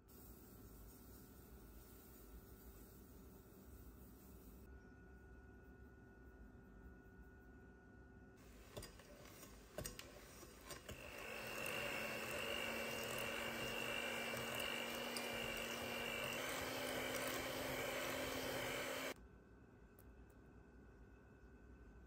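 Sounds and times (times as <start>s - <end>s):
electric hand mixer running: 8.8s - 19.2s.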